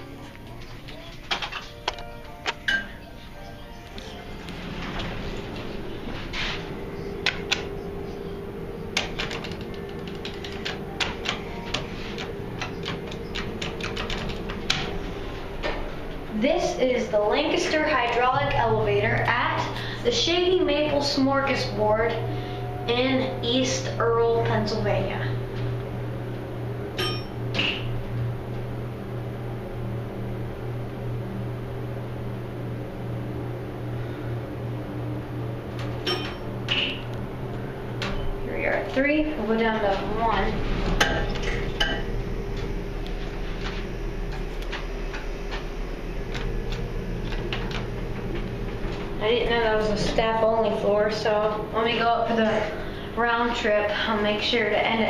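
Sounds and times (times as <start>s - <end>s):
steady elevator hum: 0.0s - 55.0s
elevator buttons clicking: 7.2s - 15.0s.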